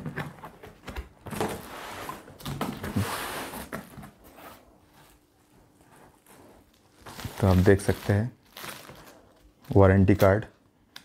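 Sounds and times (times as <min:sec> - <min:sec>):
plastic wrap crinkling: 0:05.9 - 0:10.4.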